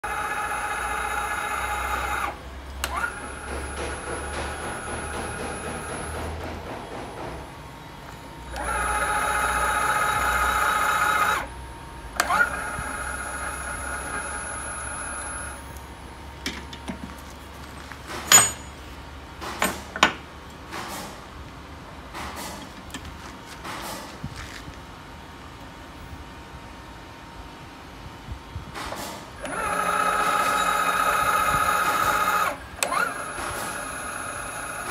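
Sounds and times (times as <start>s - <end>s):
milling machine high-pitched whine: 0.0s - 6.3s, 8.2s - 16.2s, 29.4s - 34.9s.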